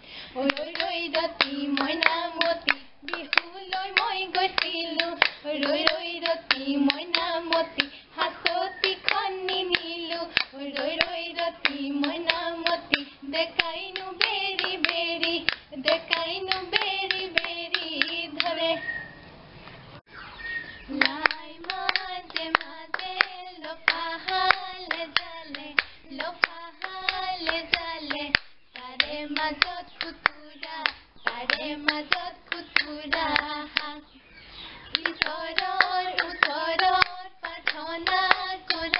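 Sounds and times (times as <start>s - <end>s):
women singing folk song: 0.0s - 19.1s, 20.8s - 34.2s, 34.8s - 38.9s
hand claps: 0.5s - 18.5s, 20.9s - 34.0s, 34.9s - 38.9s
bamboo clapper clacking: 0.6s - 18.6s.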